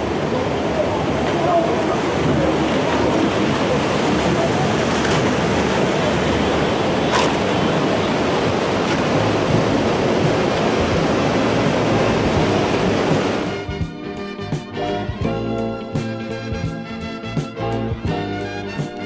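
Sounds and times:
rushing floodwater: 0.0 - 13.8.

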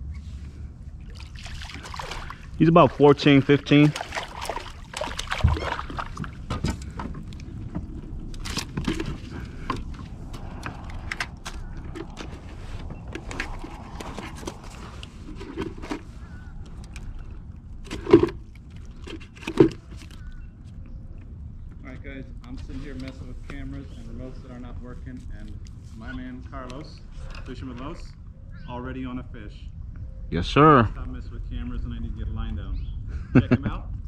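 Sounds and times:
fish and tackle clicking in kayak: 3.8 - 20.6.

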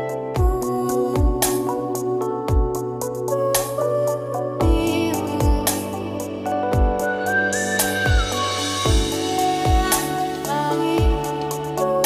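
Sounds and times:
instrumental music: 0.0 - 12.0
kick drum thump: 0.4 - 0.6, 2.5 - 2.8, 6.8 - 7.0, 8.1 - 9.9.

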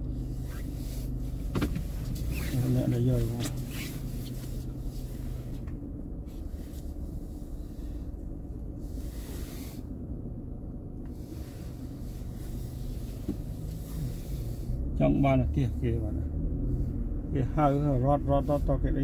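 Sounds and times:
low rumble inside car: 0.0 - 19.0.

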